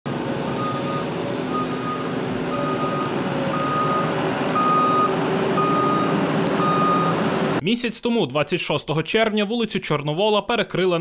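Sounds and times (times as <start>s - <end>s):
diesel engines running: 0.1s - 7.6s
reversing alarm beeping: 0.5s - 7.4s.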